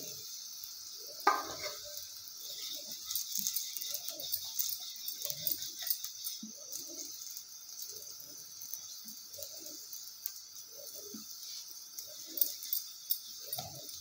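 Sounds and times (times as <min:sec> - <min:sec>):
steady hiss: 0:00.0 - 0:14.0
rolling pin rubbing dough: 0:01.3 - 0:08.2.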